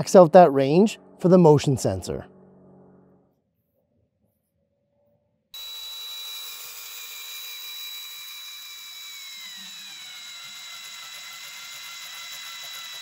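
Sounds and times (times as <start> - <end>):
power drill whining: 5.6 - 13.0.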